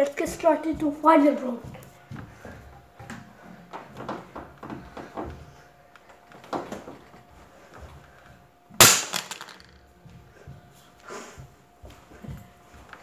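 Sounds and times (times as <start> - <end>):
phone cracking on hard floor: 8.8 - 9.8
soft knocks and shuffling: 10.0 - 13.0.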